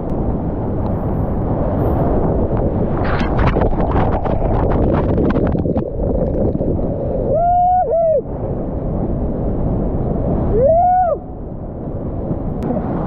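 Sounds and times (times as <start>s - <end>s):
water splashing on microphone: 2.6s - 7.4s
person whooping yell: 7.3s - 8.3s, 10.5s - 11.3s.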